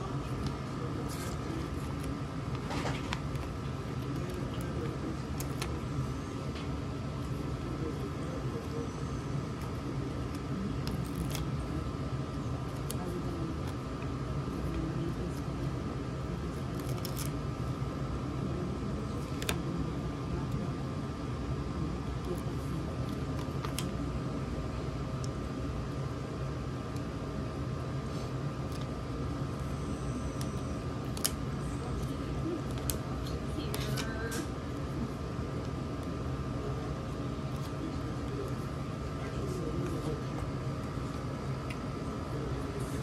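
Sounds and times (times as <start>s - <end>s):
faint whine: 0.0s - 43.0s
low room hum: 0.0s - 43.0s
stickers peeled and pressed: 0.2s - 7.5s, 9.5s - 15.5s, 16.5s - 17.4s, 22.2s - 24.0s, 30.3s - 34.6s
plastic sticker sheet crinkling: 16.5s - 17.4s.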